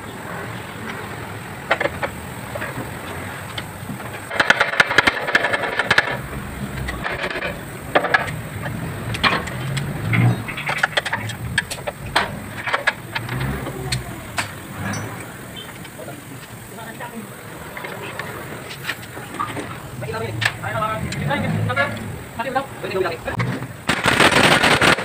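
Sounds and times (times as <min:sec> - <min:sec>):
tools clicking and knocking on metal: 0:01.7 - 0:16.6, 0:17.8 - 0:22.1.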